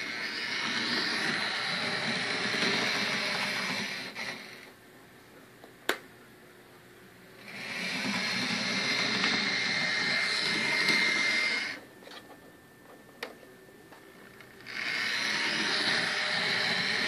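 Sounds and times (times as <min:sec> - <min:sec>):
small electric motor whirring: 0:00.0 - 0:04.7, 0:07.4 - 0:11.8, 0:14.6 - 0:17.0.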